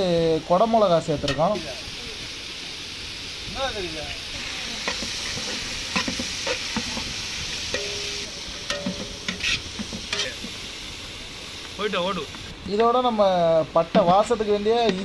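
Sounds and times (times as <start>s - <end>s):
vegetables sizzling in oil: 0.0s - 15.0s
metal ladle scraping pot: 4.8s - 10.6s.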